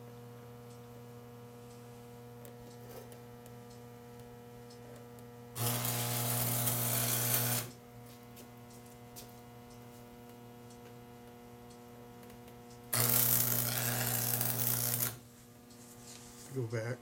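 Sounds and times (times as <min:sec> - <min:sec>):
electrical hum: 0:00.0 - 0:17.0
welding arc burning: 0:05.6 - 0:07.7, 0:12.9 - 0:15.3.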